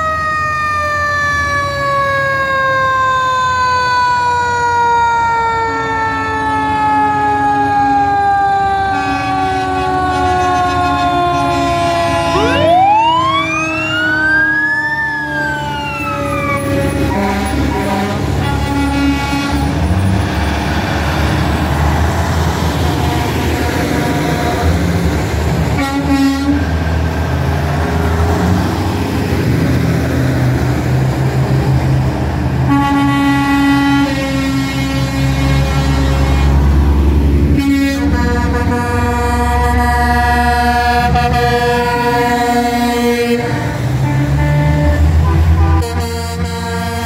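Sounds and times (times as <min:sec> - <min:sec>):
diesel trucks rumbling: 0:00.0 - 0:47.0
fire engine siren: 0:00.0 - 0:47.0
truck air horns: 0:08.8 - 0:14.2, 0:15.2 - 0:20.4, 0:22.7 - 0:26.9, 0:32.6 - 0:47.0.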